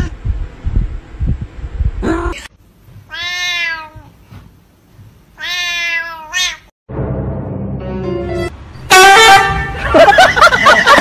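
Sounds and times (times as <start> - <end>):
cat meowing: 3.1 - 4.1, 5.4 - 6.7.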